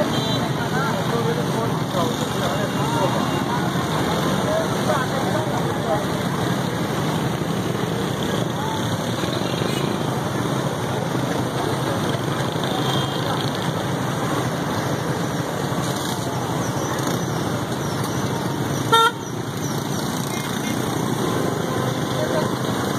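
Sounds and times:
street traffic: 0:00.0 - 0:22.9
car horn honk: 0:18.9 - 0:19.3.

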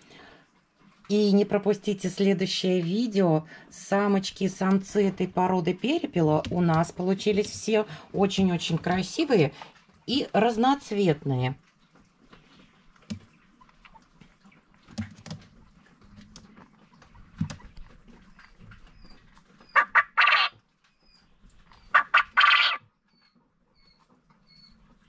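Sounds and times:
quail crowing: 0:19.6 - 0:20.6, 0:21.8 - 0:22.9.

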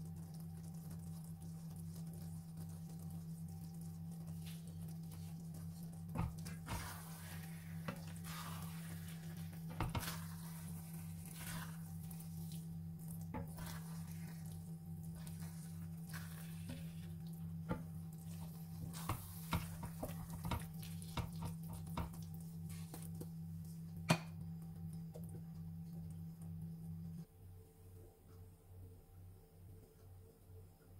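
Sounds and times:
steady low hum: 0:00.0 - 0:30.9
spoon swishing through rice: 0:04.4 - 0:12.7, 0:13.4 - 0:17.2.

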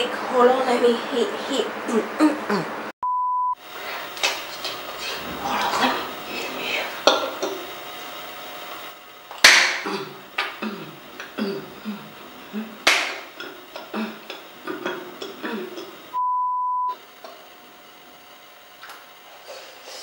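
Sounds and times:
high bleep tone: 0:03.0 - 0:03.6, 0:16.2 - 0:17.0.

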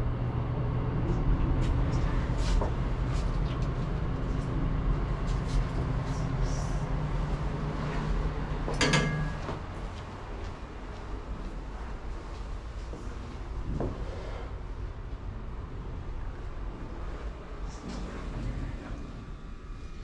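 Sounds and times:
elevator hum and rumble: 0:00.0 - 0:20.0
elevator clack with high tone: 0:08.7 - 0:09.8.

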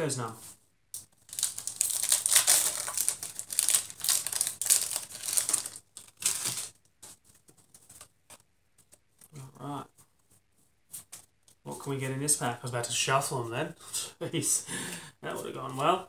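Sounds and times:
foil wrapper crinkling: 0:01.1 - 0:06.8.

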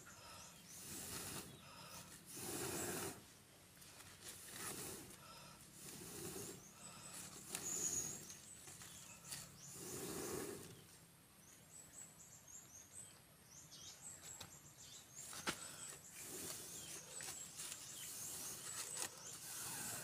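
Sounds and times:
small birds chirping: 0:00.0 - 0:20.0
blowing on a wood fire: 0:00.6 - 0:03.3, 0:04.2 - 0:08.4, 0:09.7 - 0:10.8, 0:16.2 - 0:20.0.

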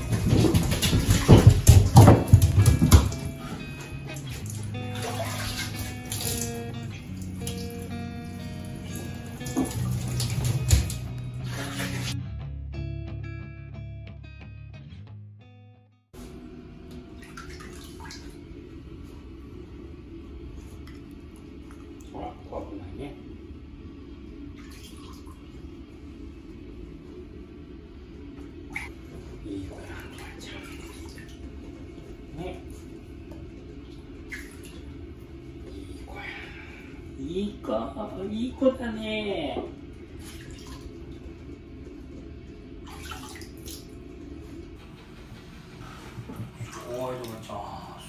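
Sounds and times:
low rushing room noise: 0:00.0 - 0:12.1, 0:16.2 - 0:48.0
water splashing in a basin: 0:00.0 - 0:12.2, 0:17.0 - 0:18.5, 0:24.5 - 0:25.6, 0:29.8 - 0:31.5, 0:33.9 - 0:35.0, 0:40.2 - 0:41.2, 0:42.8 - 0:44.0
background music: 0:02.3 - 0:14.9.

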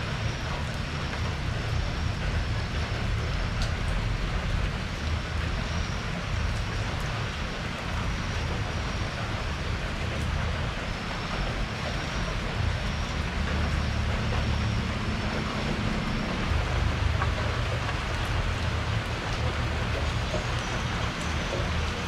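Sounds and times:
rain falling on a porch: 0:00.0 - 0:22.0
low rumble: 0:11.4 - 0:21.7.

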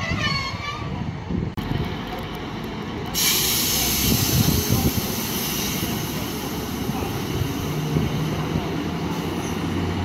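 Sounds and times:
diesel train engines idling: 0:01.0 - 0:10.0
compressed air hiss: 0:03.1 - 0:07.8.

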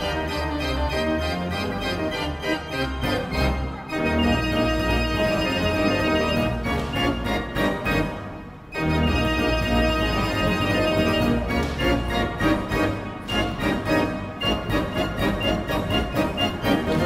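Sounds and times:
organ playing sustained chords: 0:00.0 - 0:17.0.

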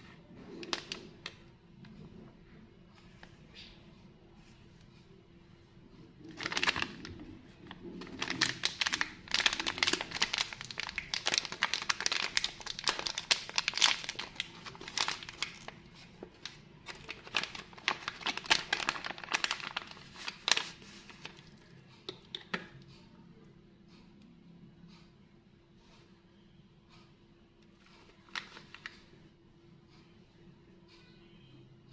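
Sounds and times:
plastic wrapper crinkling and tearing: 0:00.4 - 0:01.4, 0:06.2 - 0:21.7, 0:28.0 - 0:29.0.

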